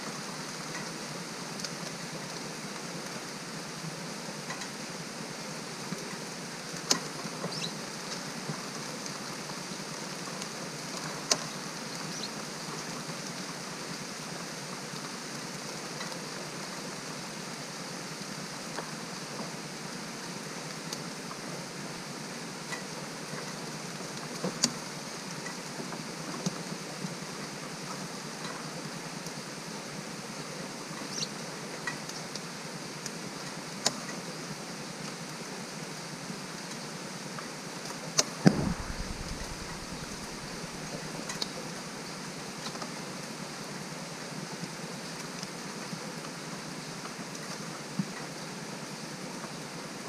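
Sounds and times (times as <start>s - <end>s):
rain hiss: 0.0s - 50.0s
loud thump: 38.4s - 40.9s.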